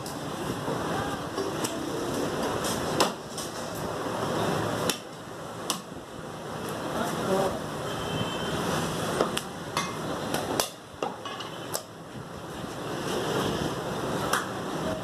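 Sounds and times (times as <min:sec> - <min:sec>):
steady rushing background noise: 0:00.0 - 0:15.0.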